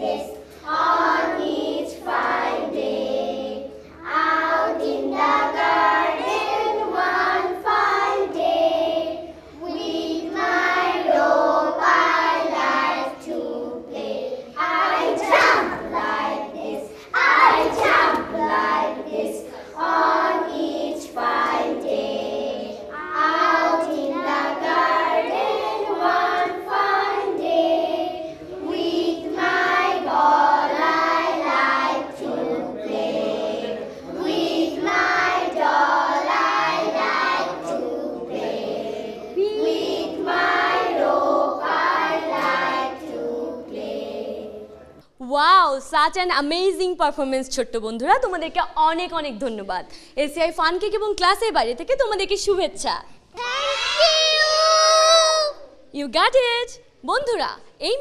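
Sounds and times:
children chanting a rhyme: 0:00.0 - 0:44.8
child's voice chanting: 0:53.4 - 0:55.8.

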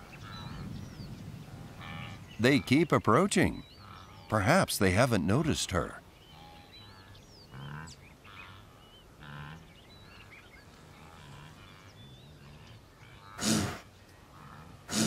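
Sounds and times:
small birds chirping: 0:00.0 - 0:15.0
wildebeest grunting: 0:10.9 - 0:15.0.

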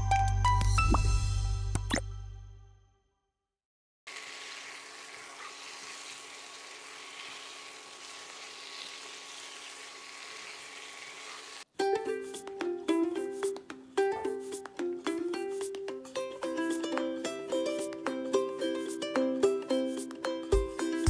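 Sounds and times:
meat sizzling in oil: 0:04.1 - 0:11.7.

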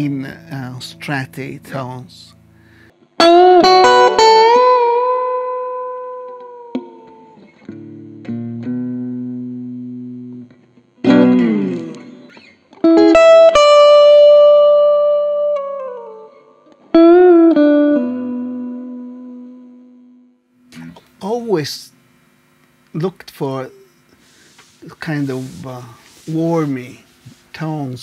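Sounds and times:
clean electric guitar chords: 0:00.0 - 0:22.9.

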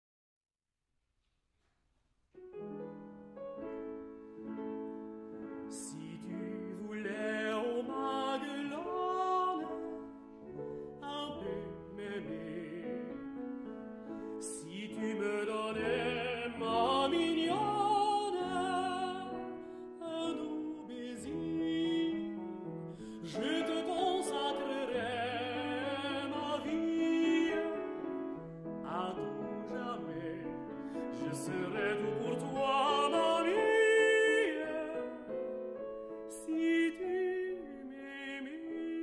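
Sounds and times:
piano accompaniment: 0:02.3 - 0:39.0
tenor singing with vibrato: 0:05.7 - 0:10.1, 0:14.4 - 0:35.3.

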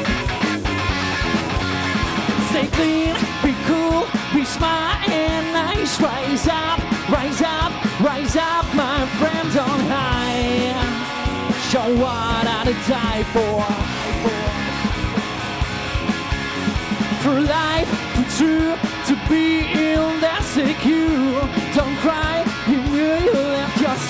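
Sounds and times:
funk rock band playing: 0:00.0 - 0:24.0
man singing: 0:02.3 - 0:15.2, 0:17.2 - 0:24.0.

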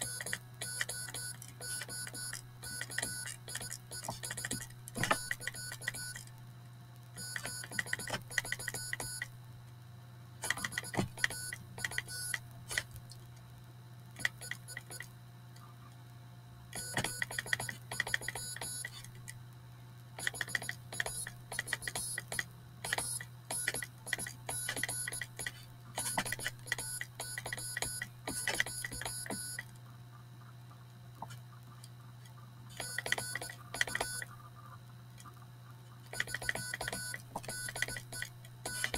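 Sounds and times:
morse code buzzing: 0:00.0 - 0:06.3, 0:07.2 - 0:09.4, 0:10.4 - 0:12.5, 0:16.7 - 0:19.1, 0:20.2 - 0:29.7, 0:32.8 - 0:34.4, 0:36.2 - 0:38.9
steady low hum: 0:00.0 - 0:38.9.

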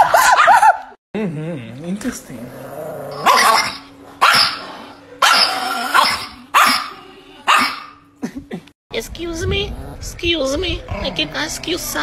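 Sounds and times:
small dog barking: 0:03.2 - 0:08.0.

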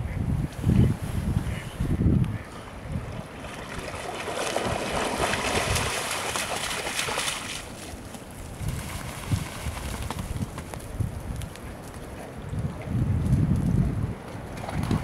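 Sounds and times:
dog splashing through water: 0:03.4 - 0:10.7.

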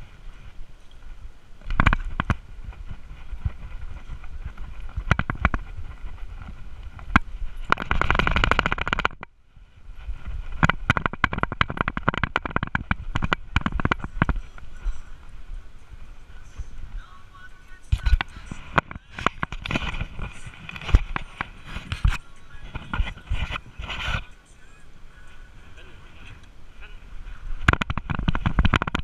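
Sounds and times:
camera knocking in harness: 0:01.6 - 0:09.3, 0:10.5 - 0:14.4, 0:27.7 - 0:29.0
rapid clicking: 0:06.8 - 0:09.3, 0:10.6 - 0:14.9.

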